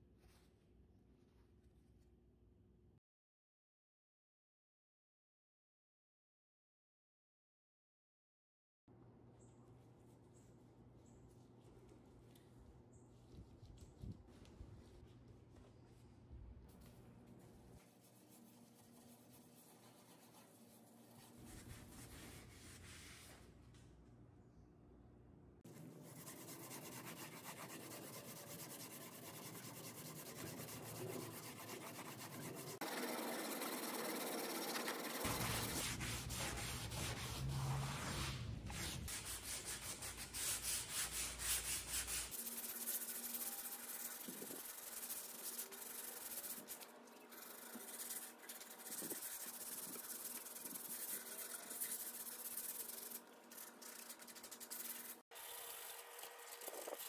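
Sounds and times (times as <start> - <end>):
sandpaper rubbing wood: 25.7 - 55.2.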